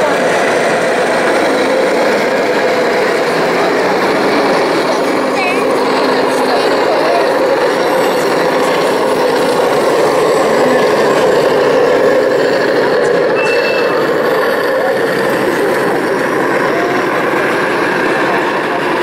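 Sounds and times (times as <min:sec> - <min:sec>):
model tank engine rumble: 0:00.0 - 0:19.0
short high beep: 0:13.4 - 0:14.0.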